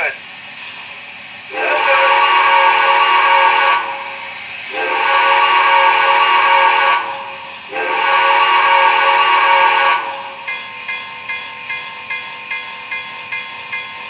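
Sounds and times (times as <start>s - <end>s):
steam whistle blasts: 1.5s - 10.4s
bell ringing: 10.5s - 14.0s.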